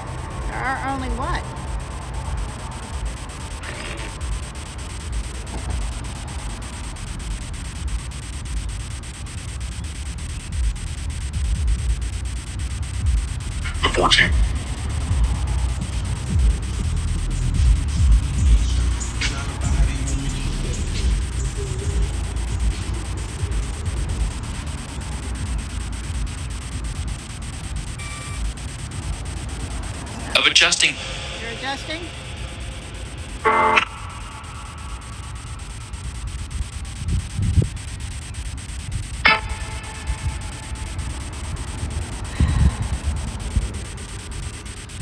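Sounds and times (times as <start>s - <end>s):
low rumble: 0.0s - 30.2s
fast even clicks: 0.0s - 30.4s, 31.4s - 45.0s
white noise static hiss: 0.0s - 45.0s.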